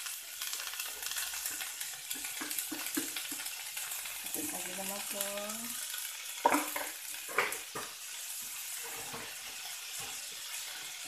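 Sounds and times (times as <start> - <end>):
ferns sizzling in a wok: 0.0 - 11.0
metal spatula scraping a wok: 8.6 - 10.8.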